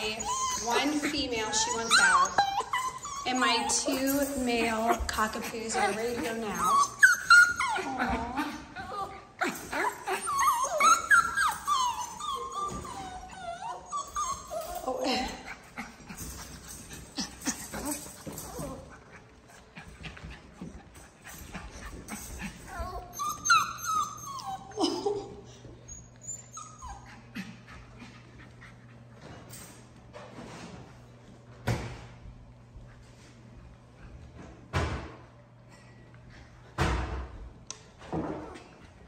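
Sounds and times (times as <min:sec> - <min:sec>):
puppies whining and yipping: 0:00.0 - 0:19.4, 0:21.2 - 0:29.1.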